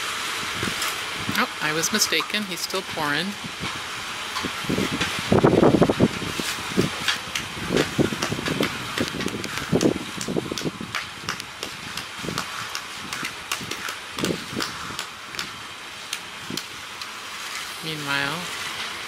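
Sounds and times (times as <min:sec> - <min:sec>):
concrete mixer truck running: 0:00.0 - 0:19.0
sharp clicks and knocks: 0:07.0 - 0:17.1.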